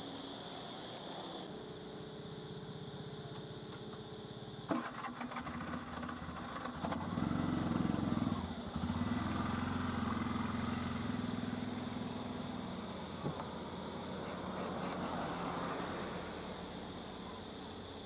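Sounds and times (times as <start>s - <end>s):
engine running hum: 3.0s - 18.0s
engine starting clatter: 4.7s - 7.3s.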